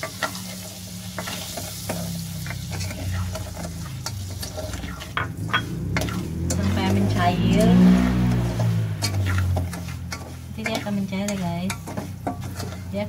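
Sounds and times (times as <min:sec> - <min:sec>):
butter sizzling: 0:00.0 - 0:07.4, 0:08.0 - 0:13.0
spatula scraping a saucepan: 0:01.2 - 0:07.0, 0:09.0 - 0:13.0.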